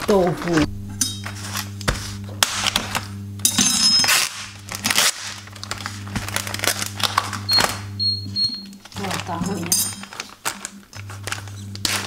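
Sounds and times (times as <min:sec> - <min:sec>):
low hum: 0:00.0 - 0:12.0
plastic tray crinkling: 0:08.8 - 0:12.0.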